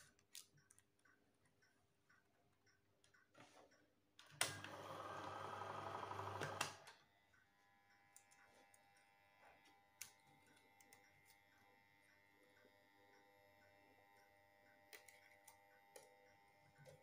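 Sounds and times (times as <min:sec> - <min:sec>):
film projector clattering: 0:04.4 - 0:07.0.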